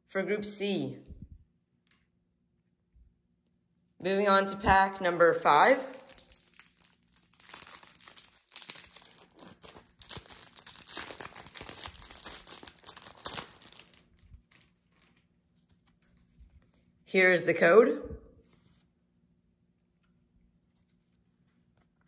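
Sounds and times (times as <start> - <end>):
wrapper tearing and crinkling: 4.9 - 16.7.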